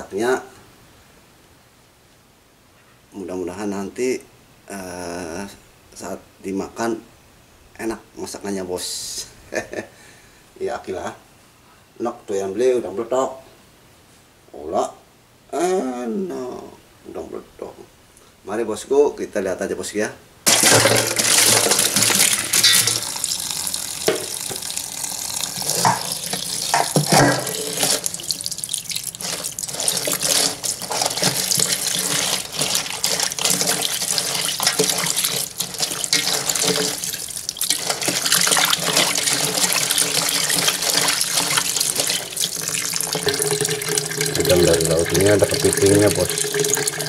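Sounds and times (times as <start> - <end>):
tap water running into basin: 20.5 - 47.0
water splashing: 20.5 - 47.0.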